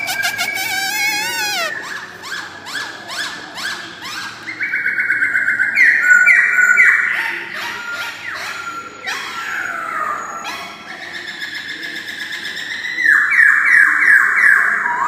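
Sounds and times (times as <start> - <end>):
fast repeated bird whistles: 0.0 - 2.0.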